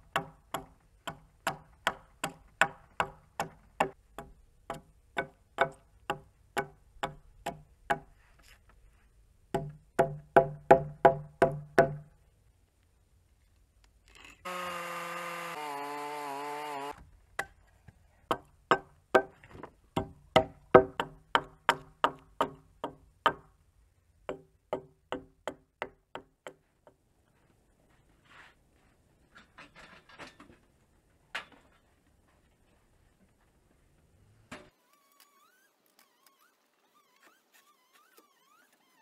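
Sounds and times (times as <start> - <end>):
hammer striking steel chisel: 0.1 - 8.1.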